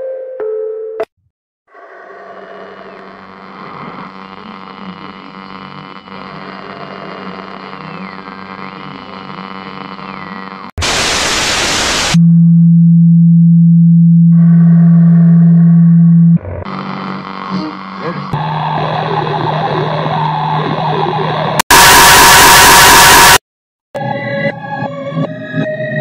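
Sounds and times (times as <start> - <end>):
static hiss burst: 7.6 - 12.2
loud low hum-like tone: 12.1 - 18.4.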